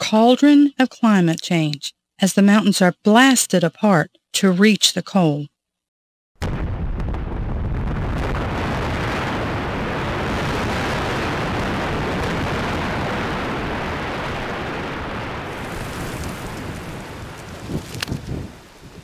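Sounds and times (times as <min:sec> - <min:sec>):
blast rumble with falling rock: 0:06.4 - 0:18.5.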